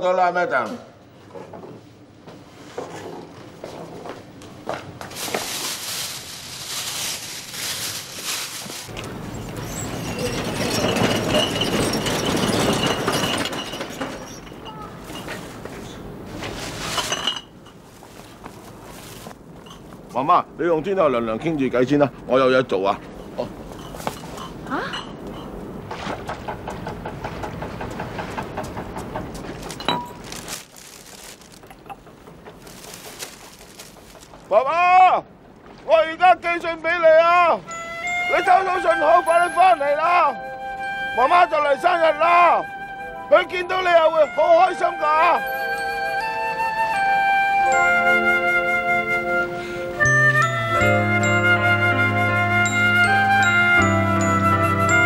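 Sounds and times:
plastic bags crinkling: 5.1s - 9.0s, 16.6s - 19.4s, 29.6s - 34.5s
hand cart rattling over concrete: 7.0s - 15.6s, 26.5s - 34.6s.

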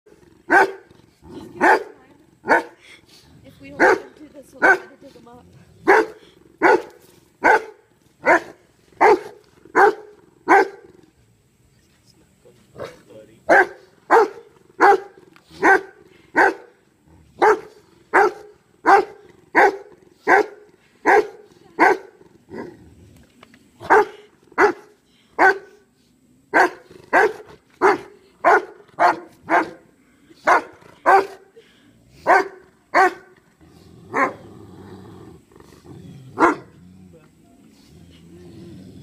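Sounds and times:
large dog barking: 0.4s - 2.8s, 3.7s - 5.0s, 5.8s - 11.0s, 12.8s - 22.8s, 23.8s - 25.8s, 26.5s - 31.5s, 32.2s - 33.4s, 34.1s - 34.5s, 36.4s - 36.8s.

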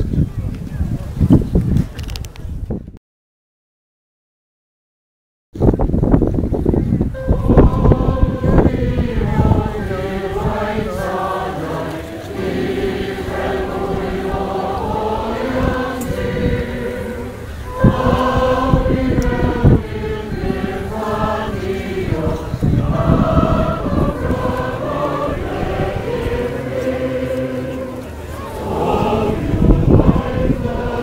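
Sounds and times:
choir singing: 7.2s - 31.0s.

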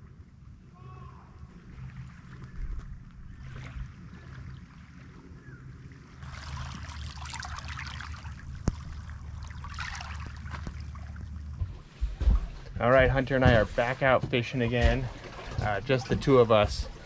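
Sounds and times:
low steady hum: 0.0s - 17.0s
water trickling over pebbles: 6.2s - 11.7s.

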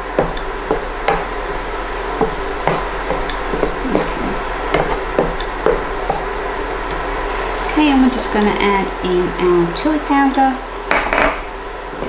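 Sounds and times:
wooden spatula scraping a pan: 0.0s - 8.4s
hob humming: 0.0s - 12.0s
light sizzle: 0.0s - 12.0s.

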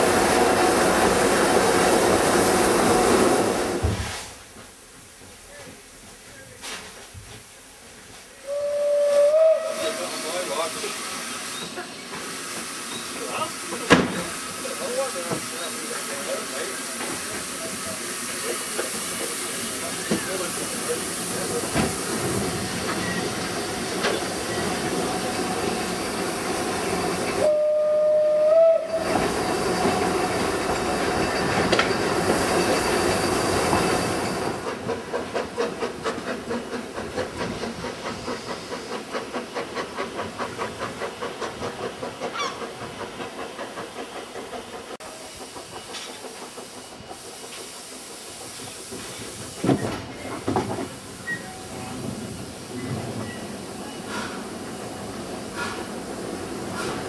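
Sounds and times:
steam hissing: 0.0s - 57.0s
steam whistle blast: 8.4s - 10.3s, 27.4s - 29.2s.

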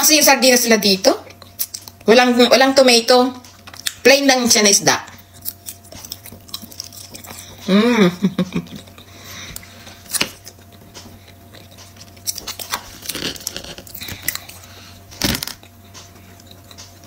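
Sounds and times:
quiet chewing: 1.2s - 2.1s, 5.1s - 7.7s, 8.5s - 17.0s.

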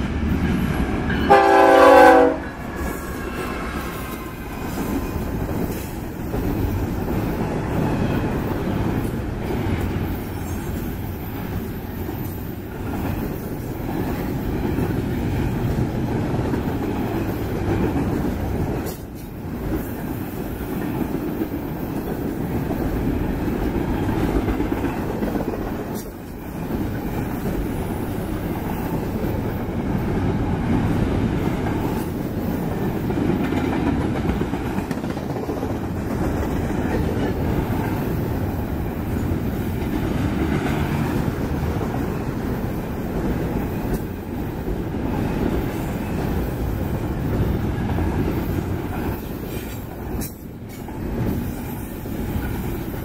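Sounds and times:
train cars rumbling and clattering: 0.0s - 53.0s
locomotive horn blast: 1.2s - 2.6s.

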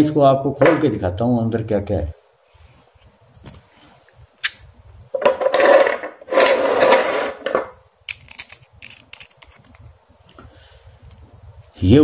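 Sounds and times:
threaded nut grinding and rasping: 5.2s - 10.0s.

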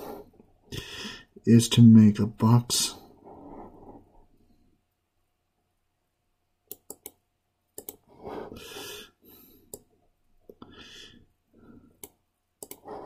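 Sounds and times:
computer mouse clicking: 6.7s - 7.2s, 7.8s - 8.1s, 9.7s - 9.9s, 12.0s - 13.0s.

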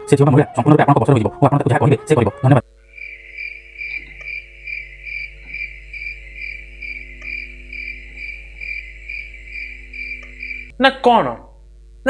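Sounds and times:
cricket chirping: 2.6s - 10.7s.

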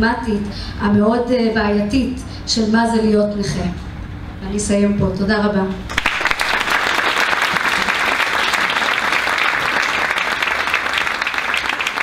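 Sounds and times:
audience applauding: 5.9s - 12.0s.

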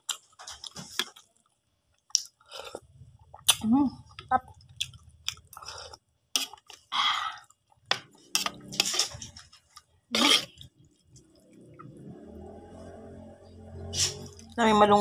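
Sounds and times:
person chewing: 0.0s - 12.3s, 14.1s - 14.6s
person slurping soup: 5.4s - 7.5s, 8.2s - 9.4s, 10.1s - 10.7s, 13.9s - 14.6s.

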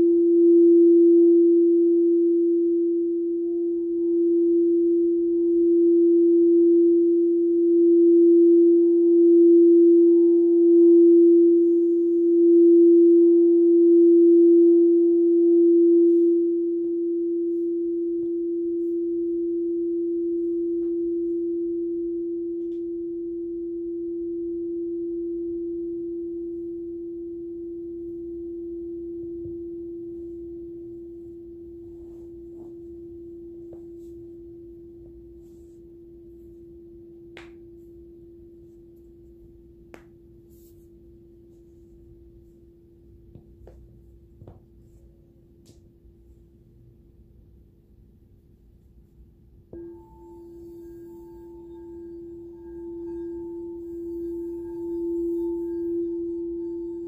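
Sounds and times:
crystal singing bowl ringing: 0.0s - 43.2s, 49.7s - 57.0s.

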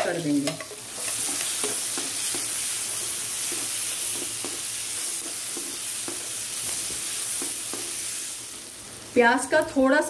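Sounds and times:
onions sizzling in butter: 0.0s - 10.0s
spatula stirring: 0.4s - 8.1s.

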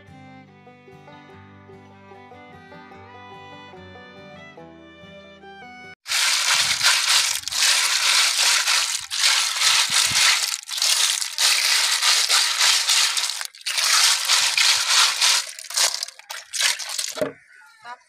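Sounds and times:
snail shells crackling on concrete: 6.1s - 17.2s
hands rubbing snail shells: 6.1s - 17.3s.

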